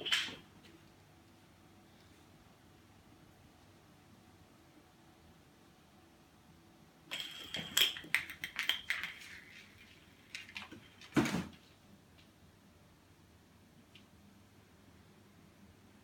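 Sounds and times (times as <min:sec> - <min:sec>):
bottle cap skittering on hard floor: 0:07.1 - 0:10.8.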